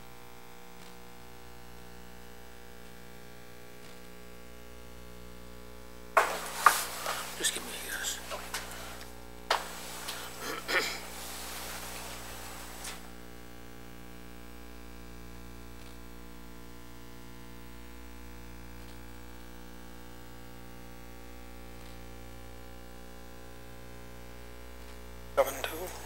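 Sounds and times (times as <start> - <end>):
electrical hum: 0.0 - 26.0
faint ticks: 0.6 - 1.2, 2.8 - 4.2, 15.6 - 16.4, 18.7 - 19.2, 24.7 - 25.1
soft knocks: 6.2 - 7.3.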